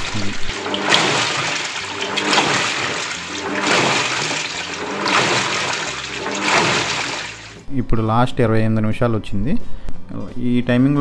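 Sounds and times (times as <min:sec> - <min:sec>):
washing machine water churning: 0:00.0 - 0:07.6.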